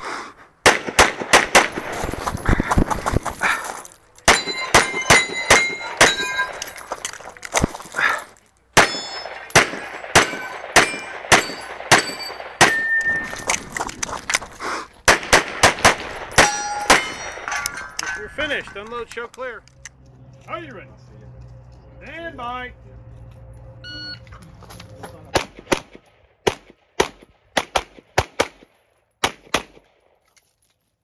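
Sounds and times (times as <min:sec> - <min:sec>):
pistol shots: 0:00.6 - 0:02.0, 0:04.2 - 0:06.6, 0:08.8 - 0:13.6, 0:15.1 - 0:18.0, 0:25.3 - 0:30.0
steel targets ringing: 0:04.2 - 0:06.9, 0:08.8 - 0:13.5, 0:16.2 - 0:18.8.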